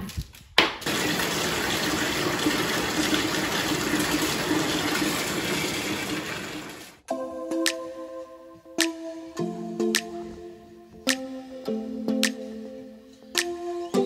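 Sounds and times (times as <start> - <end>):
water pouring into bathtub: 0.8 - 7.0.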